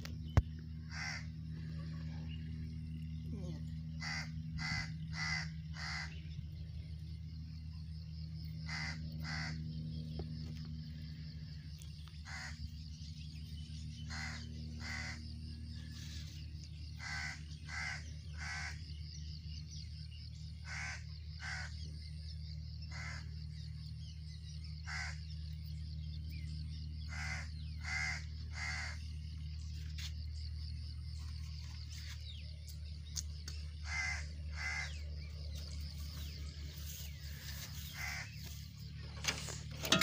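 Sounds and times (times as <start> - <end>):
steady low hum: 0.0 - 40.0
short bird calls: 36.2 - 40.0.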